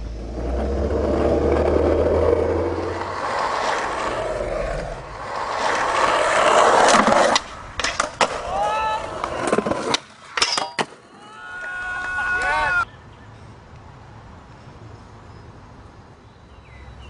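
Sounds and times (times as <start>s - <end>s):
car running low hum: 0.0s - 5.3s
road and wind noise: 0.0s - 11.0s, 12.2s - 17.0s.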